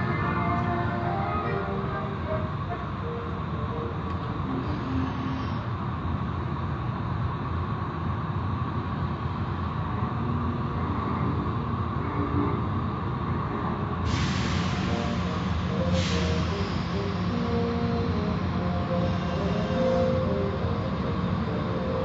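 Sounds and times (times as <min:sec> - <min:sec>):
loud spray hiss: 0:14.1 - 0:20.2
car wash machinery humming: 0:14.1 - 0:22.0.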